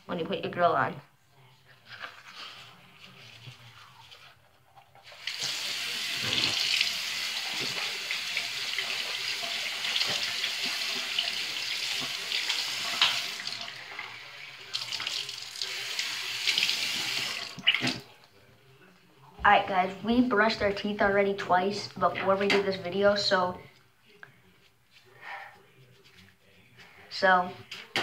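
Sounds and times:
tap water splashing into sink: 5.1 - 13.8, 16.5 - 18.1.

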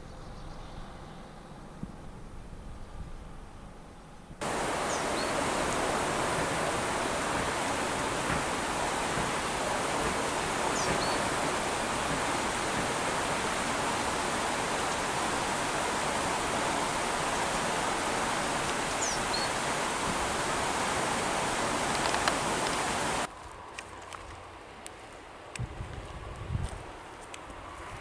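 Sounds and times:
mountain stream rushing: 4.4 - 25.6.

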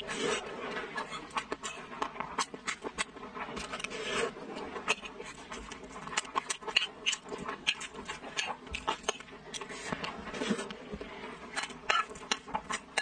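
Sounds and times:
wet chewing and mouth smacks: 5.6 - 9.7.

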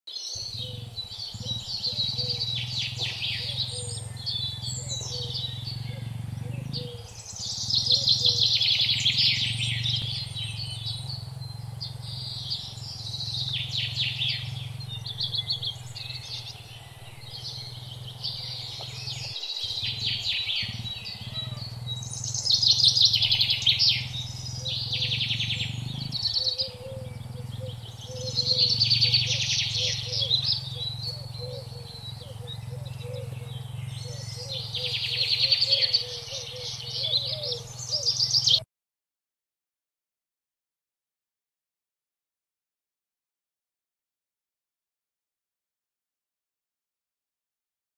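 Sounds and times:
birds chirping: 0.1 - 38.6
steady low rumble: 0.5 - 35.3.

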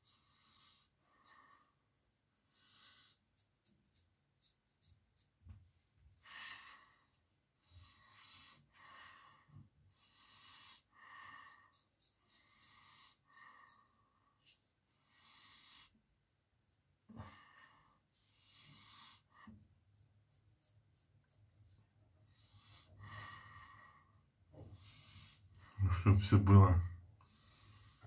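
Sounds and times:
breathing through the nose: 7.7 - 16.0, 22.3 - 25.8, 27.2 - 28.0.

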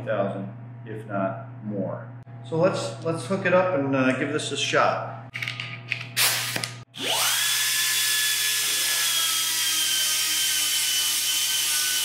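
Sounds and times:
air grinder high-pitched whine: 6.2 - 12.0.

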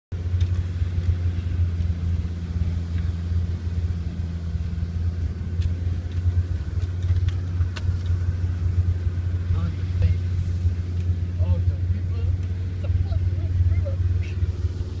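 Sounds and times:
engine and drivetrain rumble: 0.1 - 15.0.

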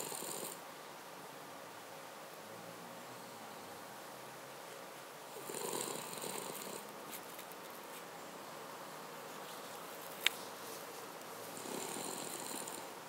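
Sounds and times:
dog snoring softly: 0.0 - 0.6, 5.3 - 6.9, 11.5 - 13.0.

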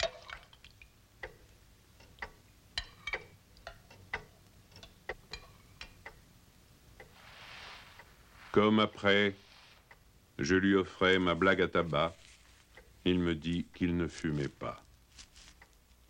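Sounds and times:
soft hiss: 0.5 - 16.0
pendulum clock ticking: 0.8 - 7.2, 9.4 - 10.6, 12.7 - 13.7.

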